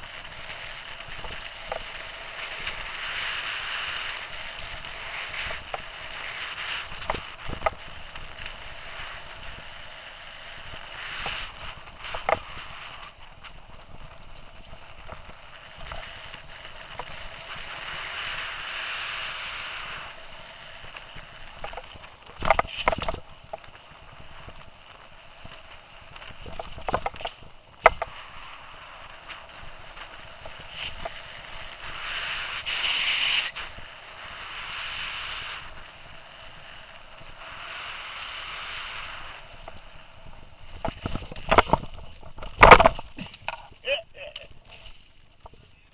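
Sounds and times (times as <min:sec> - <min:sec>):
bike rattling and knocking: 0:21.6 - 0:23.6, 0:26.4 - 0:28.1, 0:40.8 - 0:43.8.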